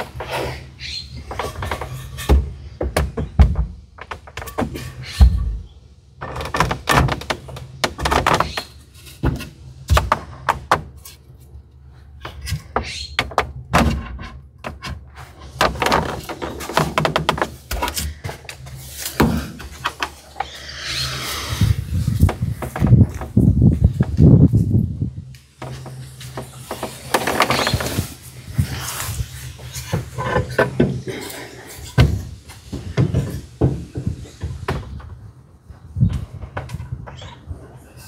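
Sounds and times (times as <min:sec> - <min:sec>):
wooden boards knocking: 0:15.6 - 0:18.0.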